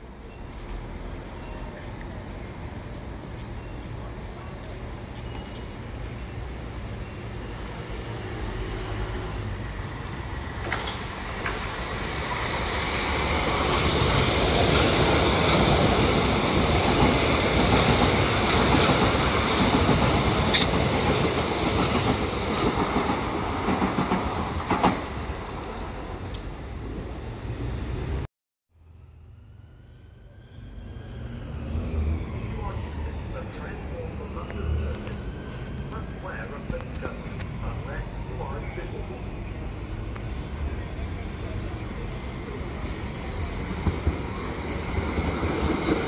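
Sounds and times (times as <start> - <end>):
train wheels rushing on rails: 2.6 - 28.2, 31.1 - 46.0
wheels clicking over rail joints: 10.6 - 11.8.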